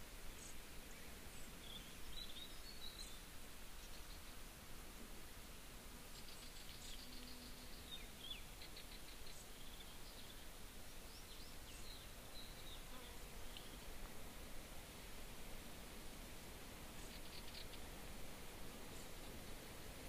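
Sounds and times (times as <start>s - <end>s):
steady outdoor hiss: 0.0s - 20.0s
small birds chirping and trilling: 6.1s - 13.9s, 17.0s - 17.9s.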